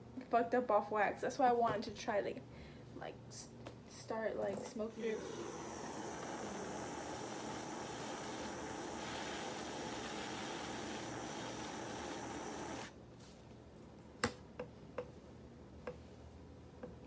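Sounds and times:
butane torch hissing: 0:04.9 - 0:13.0.

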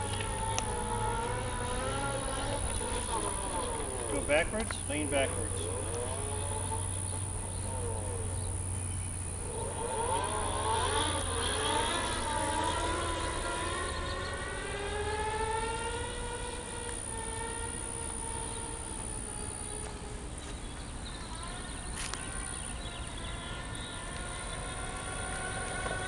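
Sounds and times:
electric motor whine: 0:00.0 - 0:26.0.

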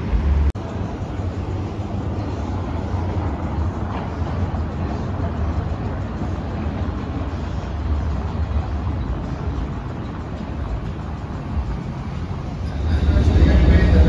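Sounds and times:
low traffic rumble: 0:00.0 - 0:14.0.

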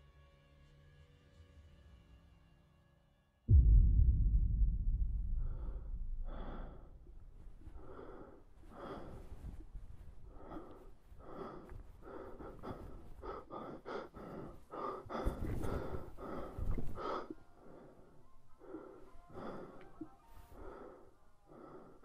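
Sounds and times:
low rumble: 0:03.5 - 0:10.7
person gasping breaths: 0:05.3 - 0:22.0.

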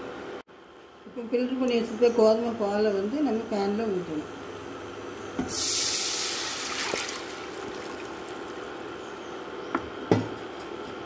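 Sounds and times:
liquid hissing in hot pan: 0:05.5 - 0:08.8.

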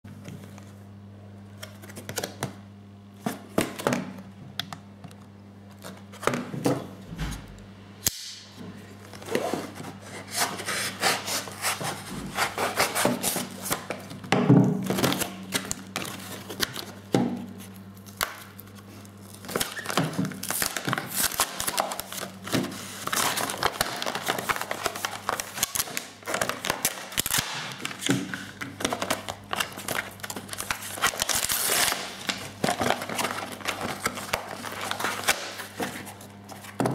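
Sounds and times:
steady low hum: 0:00.1 - 0:36.9
plastic packaging crinkling: 0:12.6 - 0:36.9
card tearing: 0:19.2 - 0:36.8.

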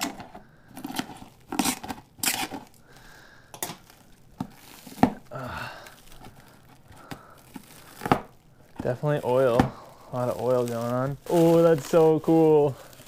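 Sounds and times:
plastic wrapping crinkling and tearing: 0:00.0 - 0:13.0.

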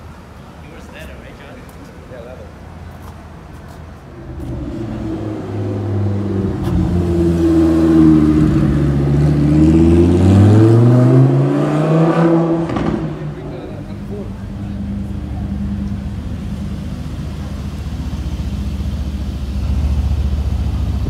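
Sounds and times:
sports car engine driving past: 0:04.2 - 0:21.0.

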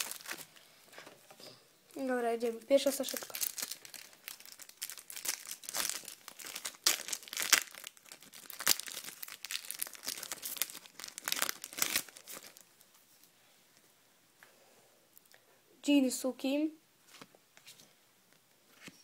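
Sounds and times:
foil packet tearing and crinkling: 0:00.0 - 0:00.6, 0:02.8 - 0:12.7.

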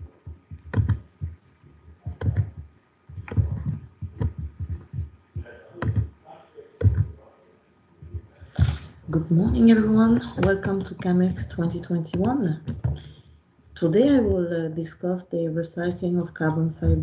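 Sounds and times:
keyboard and mouse clicks: 0:00.3 - 0:01.4, 0:02.1 - 0:05.1, 0:05.8 - 0:06.2, 0:06.8 - 0:07.2, 0:08.1 - 0:13.2.

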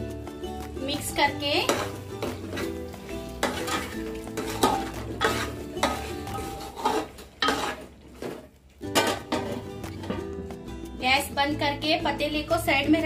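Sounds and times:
metal spoon stirring in pot: 0:00.2 - 0:10.3.

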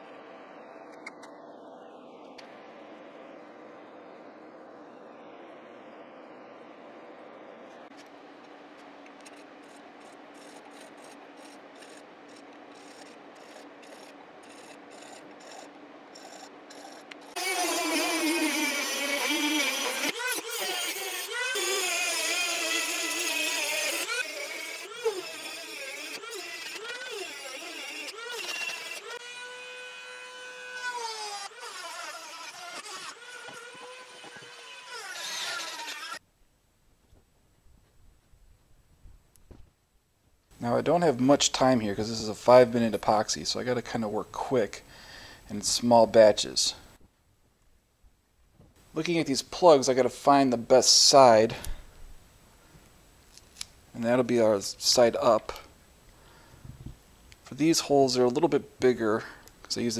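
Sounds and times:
hand file scraping brass rod: 0:09.2 - 0:29.2
cordless drill boring into wood: 0:09.6 - 0:36.2.

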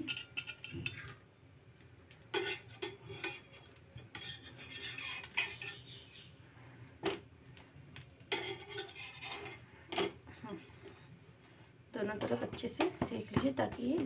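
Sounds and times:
spatula scraping a frying pan: 0:00.0 - 0:01.1, 0:02.3 - 0:06.1, 0:08.3 - 0:09.7.

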